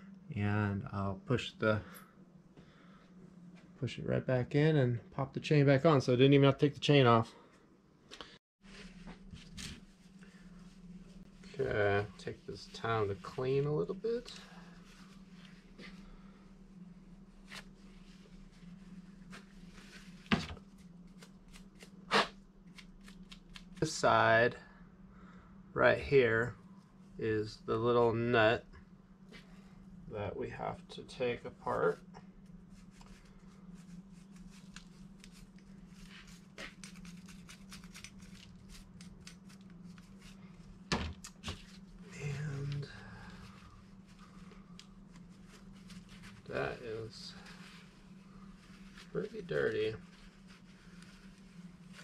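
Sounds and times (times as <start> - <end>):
steady low hum: 0.0 - 52.0
scrubbing and wiping strokes: 8.6 - 21.9, 32.6 - 40.8, 43.2 - 52.0.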